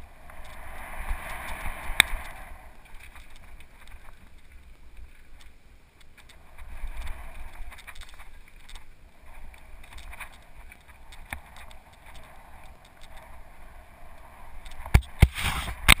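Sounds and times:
wind rushing on microphone: 0.0 - 4.2
bike clicks and rattles: 0.0 - 13.3.

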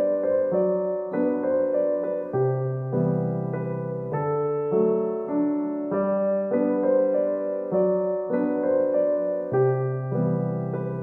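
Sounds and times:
solo piano music: 0.0 - 11.0.

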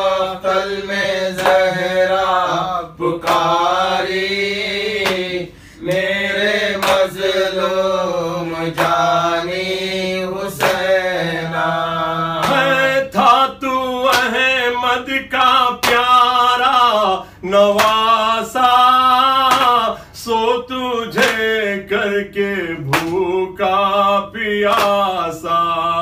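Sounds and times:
man singing a lament: 0.0 - 26.0.

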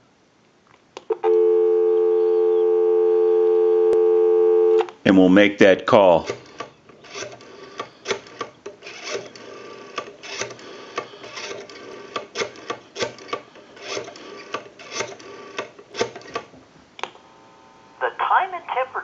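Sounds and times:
rotary telephone dial whirring: 6.2 - 16.5.

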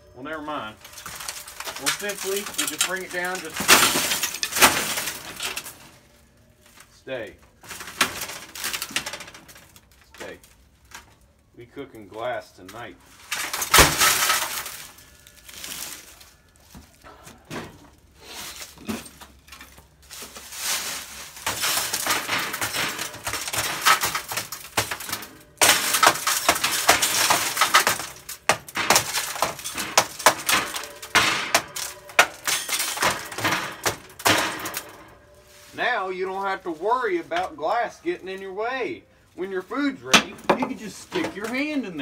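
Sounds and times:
broken glass crunching and tinkling: 0.1 - 6.8, 7.5 - 11.4, 12.7 - 17.1, 17.8 - 42.0
wooden stick knocking and scraping: 40.1 - 41.8.

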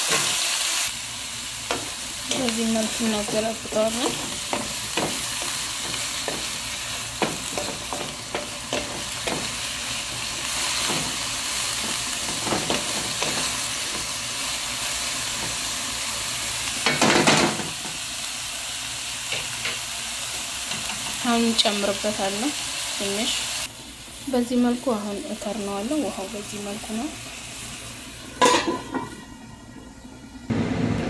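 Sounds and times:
leaves sizzling in a wok: 0.0 - 29.7
spatula knocking and scraping pan: 1.7 - 9.7, 10.6 - 14.2, 16.8 - 18.0.

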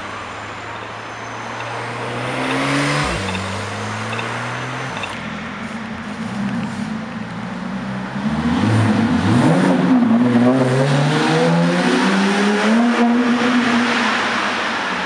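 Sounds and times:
car engine accelerating: 0.0 - 6.9.

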